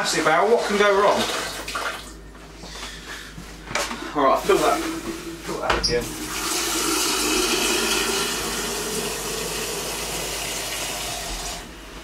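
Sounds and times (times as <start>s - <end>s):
tap water filling a kettle: 6.0s - 11.8s.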